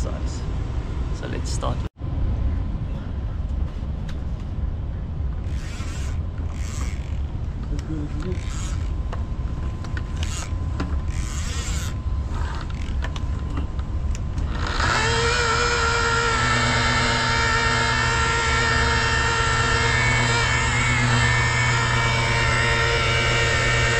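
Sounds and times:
rotary polisher motor humming: 0:05.4 - 0:09.0, 0:10.1 - 0:13.0, 0:14.4 - 0:23.9.

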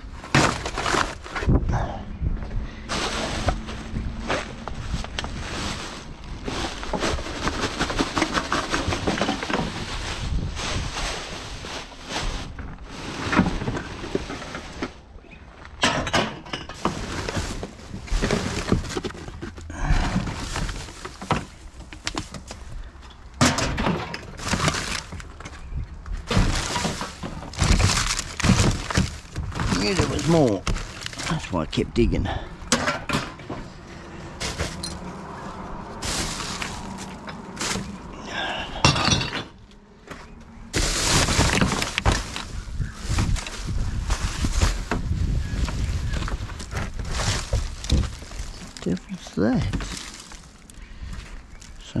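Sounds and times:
plastic bags crackling and rustling: 0:00.0 - 0:01.5, 0:02.9 - 0:15.2, 0:16.8 - 0:22.8, 0:24.2 - 0:32.2, 0:34.4 - 0:38.4, 0:40.6 - 0:52.0
knocks and thuds against bin: 0:00.2 - 0:01.7, 0:23.4 - 0:25.2, 0:26.2 - 0:30.9, 0:44.4 - 0:48.6.

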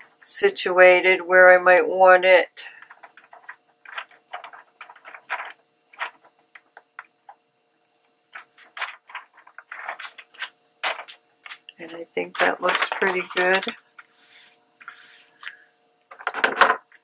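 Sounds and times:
paper rustling: 0:02.7 - 0:07.1, 0:08.3 - 0:14.3.

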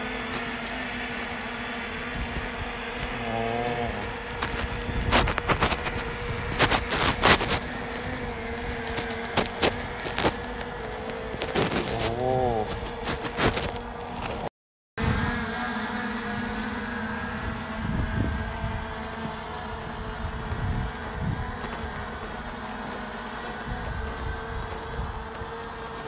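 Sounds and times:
drone propellers humming: 0:00.0 - 0:26.0
dove cooing: 0:03.0 - 0:04.8, 0:11.6 - 0:13.3.

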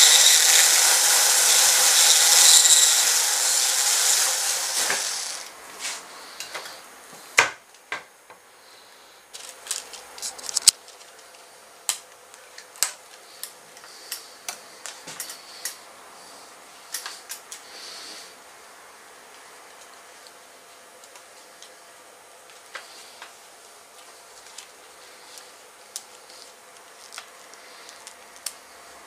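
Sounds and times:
rotary tool running down: 0:00.0 - 0:05.5.

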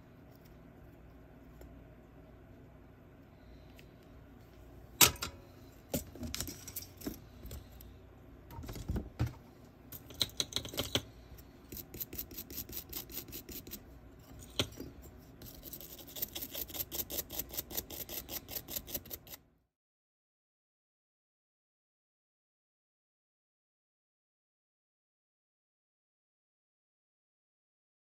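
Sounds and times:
metal file scraping metal: 0:11.7 - 0:19.4.

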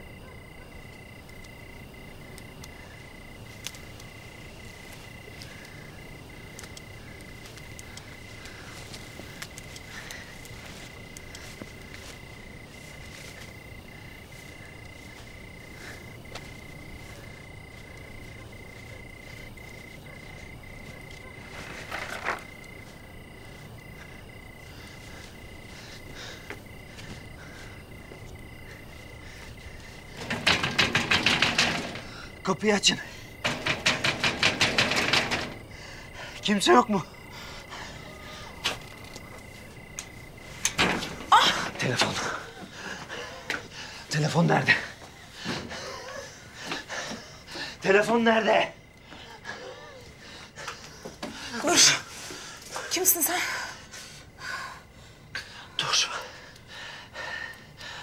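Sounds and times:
cricket chirping: 0:00.0 - 0:58.0
frogs calling faintly: 0:00.0 - 0:58.0
faint clicks: 0:00.9 - 0:12.1.

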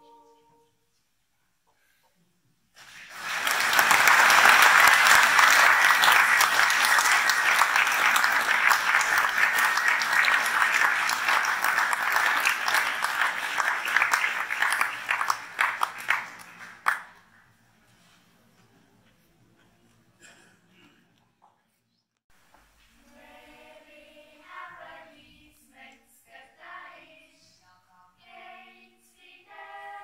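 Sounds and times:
audience applauding: 0:02.8 - 0:17.2.

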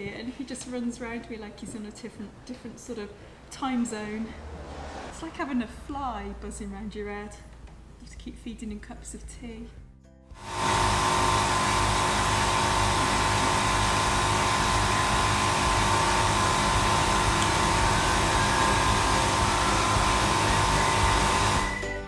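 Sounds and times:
motor-driven machine droning: 0:10.4 - 0:21.8.

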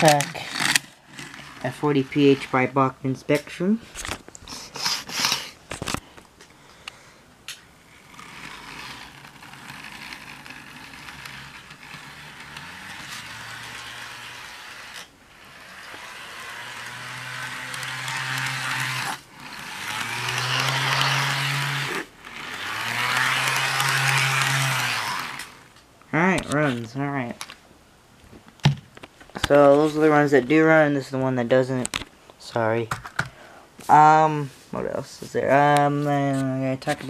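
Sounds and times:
model locomotive motor whirring: 0:00.0 - 0:02.8, 0:07.8 - 0:25.8.

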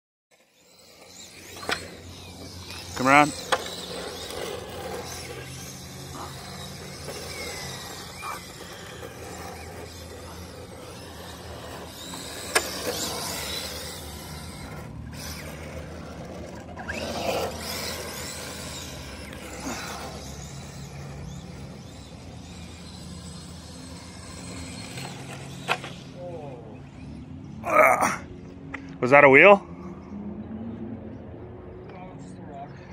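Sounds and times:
electric motor whining: 0:00.4 - 0:26.2
tyres scrubbing on concrete: 0:00.6 - 0:26.1.

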